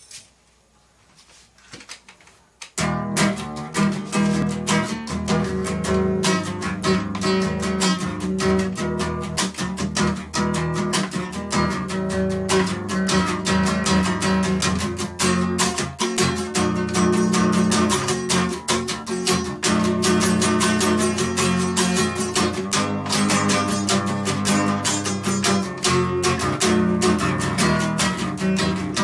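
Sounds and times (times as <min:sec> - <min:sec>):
classical guitar strumming: 0:02.8 - 0:29.0.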